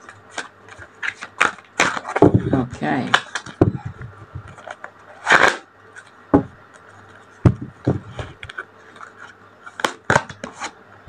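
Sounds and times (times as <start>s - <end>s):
cards rustling: 0.0s - 10.8s
faint low hum: 0.0s - 11.0s.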